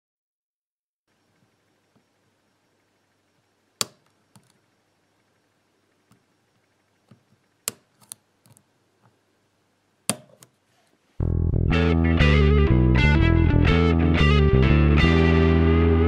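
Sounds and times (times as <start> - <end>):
lock pick clicking: 7.7 - 8.6.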